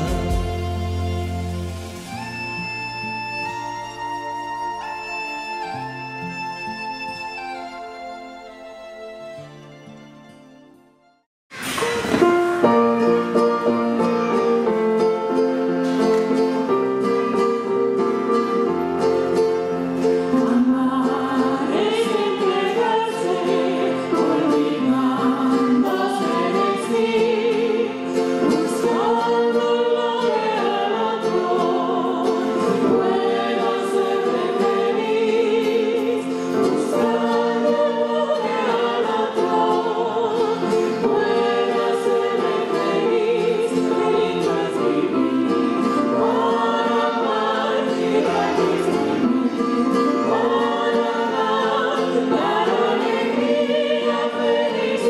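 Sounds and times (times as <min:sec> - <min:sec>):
instrumental accompaniment: 0:00.0 - 0:55.0
choir singing a slow hymn: 0:13.6 - 0:55.0.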